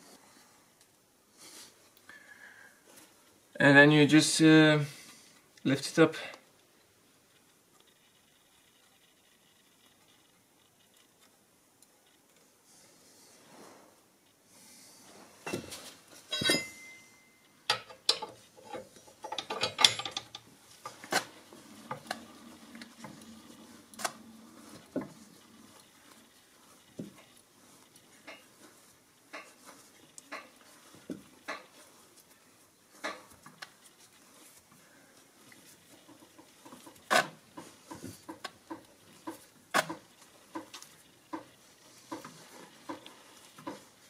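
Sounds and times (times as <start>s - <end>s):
metal clinks and clanks: 15.5s - 20.4s
jack winding clicks and knocks: 17.7s - 20.5s.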